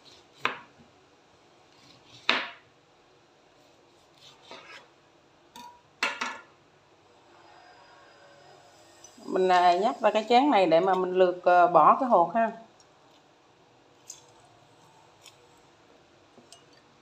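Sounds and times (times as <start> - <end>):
knife slicing lime on board: 1.8 - 2.6.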